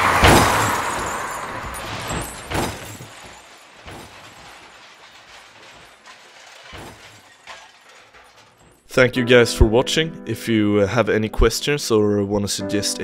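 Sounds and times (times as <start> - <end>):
glass and metal debris clinking: 0.0 - 8.9.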